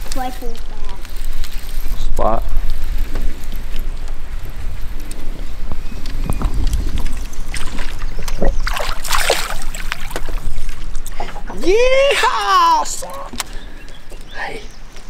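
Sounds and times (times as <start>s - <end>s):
fish splashing at water surface: 7.6s - 10.3s.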